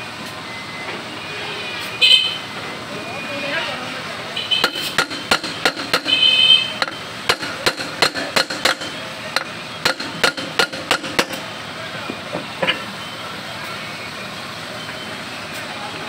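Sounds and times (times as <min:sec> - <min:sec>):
hammer striking steel hub: 0:04.6 - 0:11.5.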